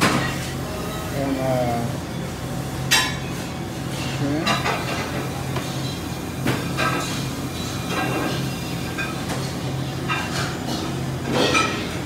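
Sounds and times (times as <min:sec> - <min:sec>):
kitchenware clinking: 0:04.0 - 0:12.0.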